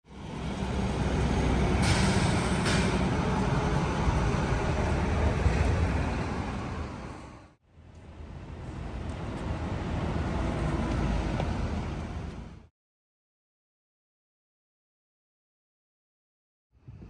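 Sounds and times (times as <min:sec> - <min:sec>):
bus engine rumble: 0:00.1 - 0:12.7
short air hisses: 0:01.8 - 0:03.0.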